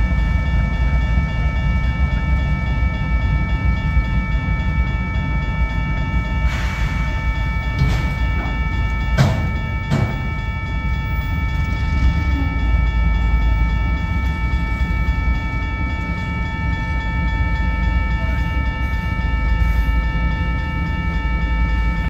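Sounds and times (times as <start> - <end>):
crossing warning bell ringing: 0.0 - 22.0
freight train rumbling past: 0.0 - 22.0.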